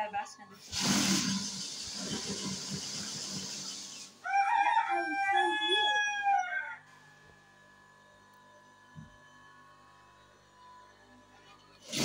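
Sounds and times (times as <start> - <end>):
rooster crowing: 4.2 - 6.9.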